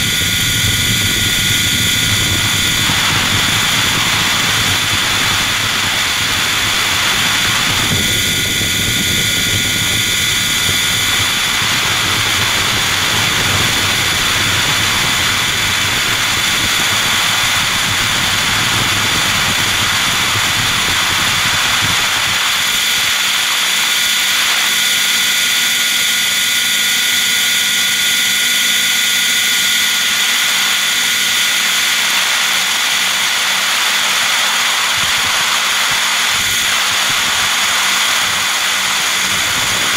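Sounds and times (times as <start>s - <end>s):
deep rumble: 0.0s - 22.4s
model helicopter engine and rotor: 0.0s - 39.9s.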